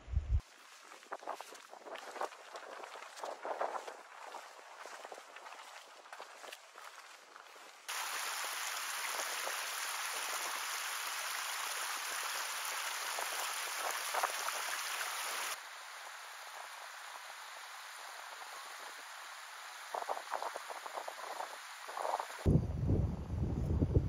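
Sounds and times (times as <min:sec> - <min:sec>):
stream running over rocks: 0:00.4 - 0:22.5.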